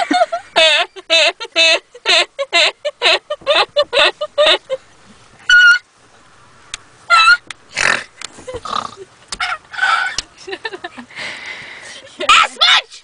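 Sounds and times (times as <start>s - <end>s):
girl squealing laugh: 5.5s - 5.9s, 7.1s - 7.5s.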